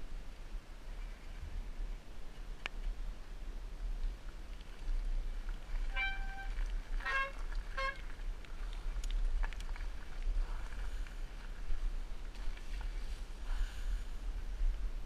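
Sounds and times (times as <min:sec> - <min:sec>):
bicycle disc brakes squealing: 0:05.9 - 0:08.0.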